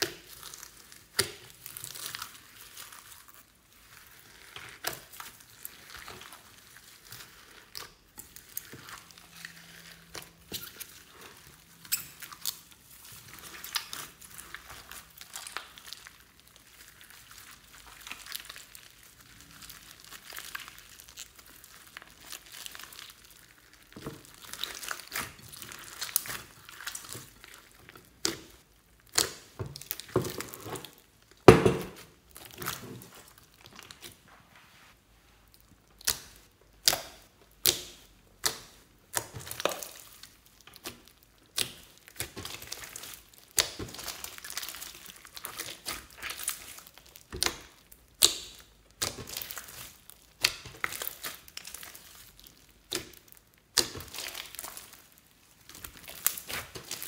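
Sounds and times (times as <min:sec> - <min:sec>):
slime squelching: 0:00.0 - 0:57.0
slime popping: 0:35.9 - 0:57.0.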